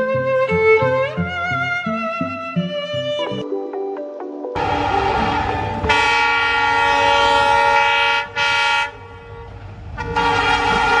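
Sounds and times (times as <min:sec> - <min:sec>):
train horn blasts: 0:04.6 - 0:11.0.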